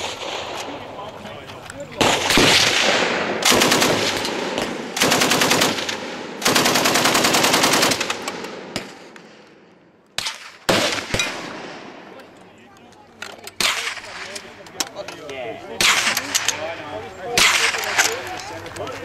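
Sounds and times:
sharp cracks: 0.0s - 12.1s, 13.3s - 15.0s, 15.8s - 16.6s, 17.4s - 18.8s
machine gun bursts: 3.4s - 4.3s, 5.0s - 8.4s.

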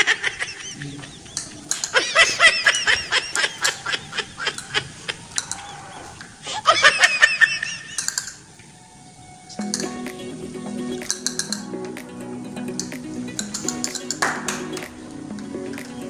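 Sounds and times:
high-pitched laughter: 0.0s - 5.5s, 6.4s - 8.2s.

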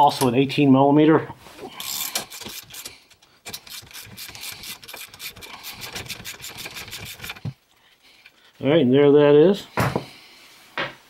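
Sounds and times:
hand ratchet clicking: 1.8s - 7.5s.

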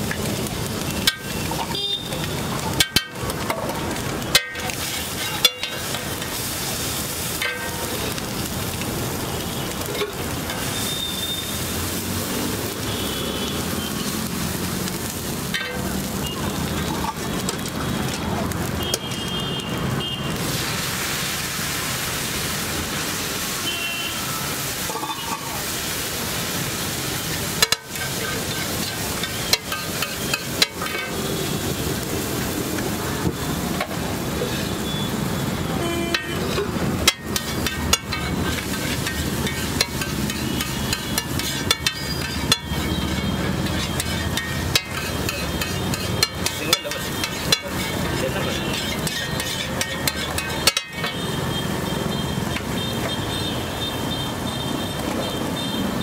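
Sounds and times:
gravy sizzling: 0.0s - 56.0s
metal spatula scraping griddle: 1.0s - 8.2s, 9.8s - 11.6s, 15.0s - 17.7s, 24.8s - 25.7s, 27.2s - 31.6s, 33.8s - 34.8s, 35.9s - 51.4s.

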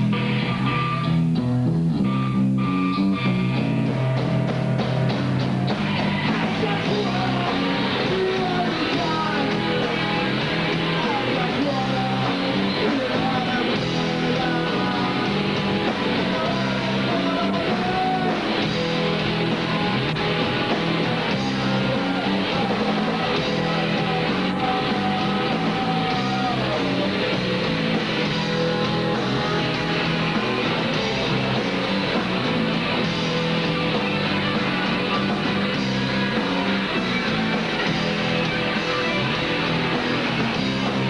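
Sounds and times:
bass guitar: 0.0s - 41.0s
drums: 0.0s - 41.0s
electric guitar: 0.0s - 41.0s
person singing: 6.0s - 18.8s, 21.0s - 27.4s.

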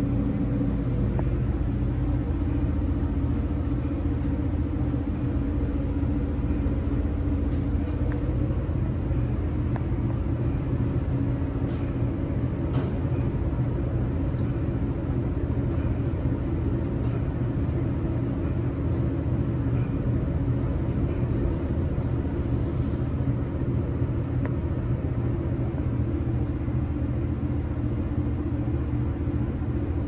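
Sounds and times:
elevator cab rumbling: 0.0s - 30.0s
faint high whine: 0.0s - 30.0s.

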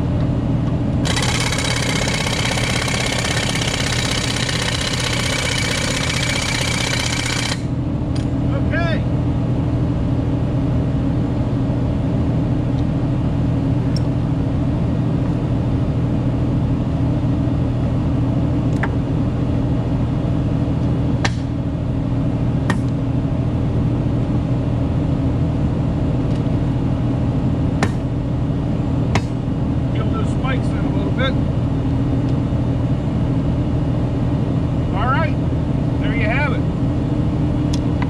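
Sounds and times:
engine idling: 1.0s - 7.8s.

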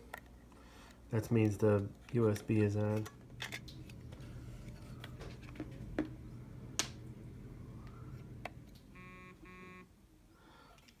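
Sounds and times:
low steady hum: 0.0s - 11.0s
short steady tones: 7.2s - 10.0s.

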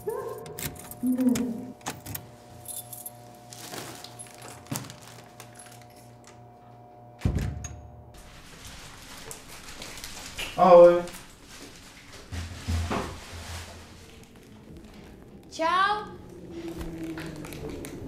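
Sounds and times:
door opening with clicks and rattles: 0.0s - 3.2s, 7.2s - 8.0s, 16.4s - 18.0s
steady low hum: 0.0s - 8.5s
heavy low thud: 7.2s - 8.0s.

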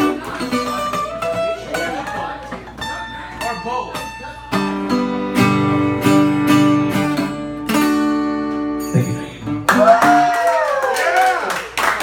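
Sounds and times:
acoustic guitar strumming: 0.0s - 10.2s.

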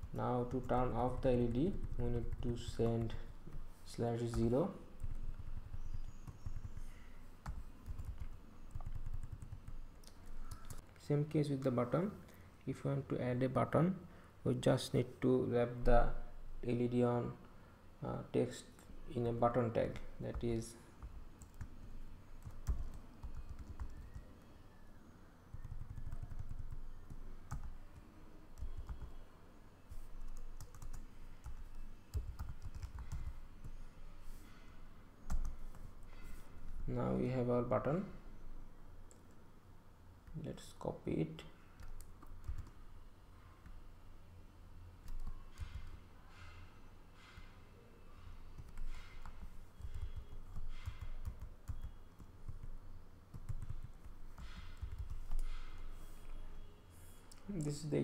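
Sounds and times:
computer keyboard typing: 0.0s - 3.7s, 4.3s - 10.8s, 20.3s - 24.5s, 25.5s - 29.2s, 30.2s - 33.8s, 35.3s - 35.9s, 41.8s - 42.8s, 45.0s - 46.0s, 48.6s - 55.9s.

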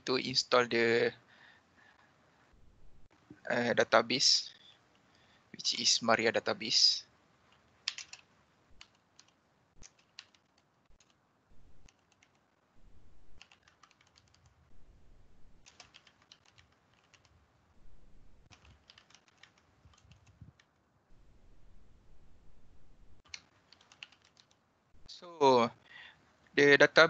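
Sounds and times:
typing on computer keyboard: 7.5s - 11.2s, 11.8s - 12.4s, 13.4s - 14.6s, 15.6s - 17.4s, 18.5s - 20.8s, 23.2s - 24.6s.

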